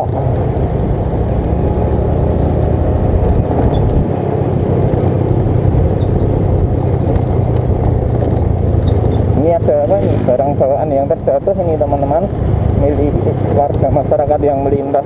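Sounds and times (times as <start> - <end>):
wind rush on microphone: 0.0 - 9.4, 11.6 - 15.0
scooter engine running: 0.1 - 10.3
short high chirps: 6.2 - 8.7.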